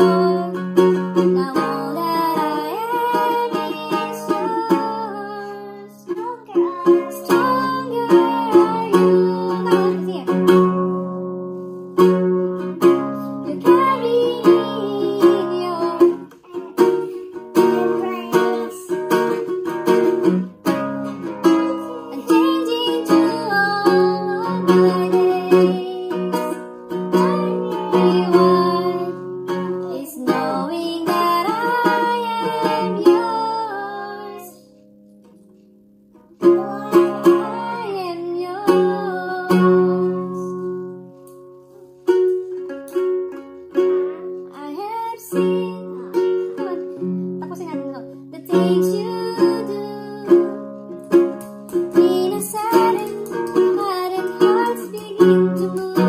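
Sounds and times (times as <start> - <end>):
woman singing: 0.0 - 10.8, 13.3 - 19.3, 21.6 - 34.7, 36.4 - 40.8, 44.4 - 50.7, 51.9 - 56.0
classical guitar strumming: 0.0 - 56.0.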